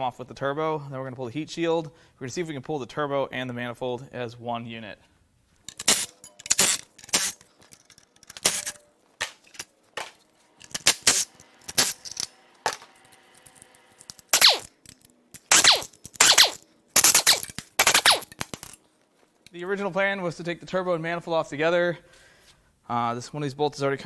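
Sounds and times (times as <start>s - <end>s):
metal clinks: 5.6s - 8.2s
impact wrench bursts: 5.7s - 7.5s, 8.3s - 8.8s, 10.6s - 18.7s.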